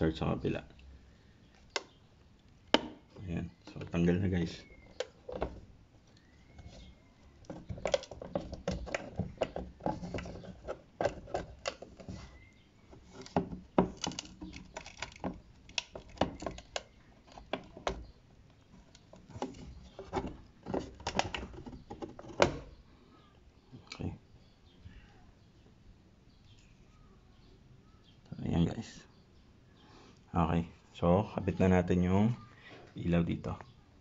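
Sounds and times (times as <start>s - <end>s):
hard plastic clicks and rattles: 7.4s - 12.2s, 12.9s - 18.1s, 18.8s - 22.6s.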